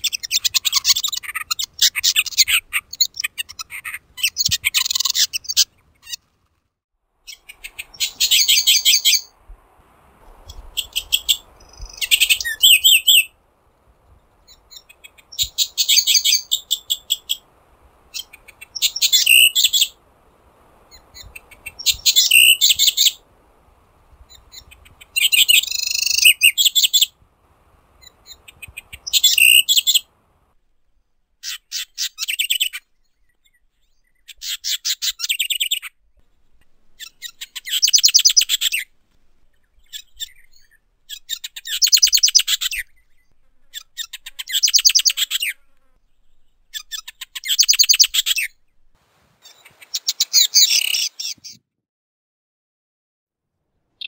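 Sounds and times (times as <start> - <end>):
wren singing trills: 0.0 - 6.2, 7.3 - 9.3, 10.5 - 13.3, 14.5 - 17.4, 18.1 - 20.0, 20.9 - 23.2, 28.0 - 30.1, 36.9 - 48.6
faint background hiss: 0.0 - 51.5.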